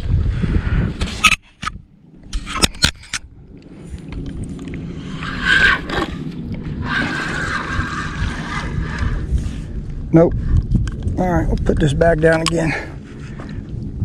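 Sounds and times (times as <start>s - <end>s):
water splashing and streaming: 2.2s - 9.0s.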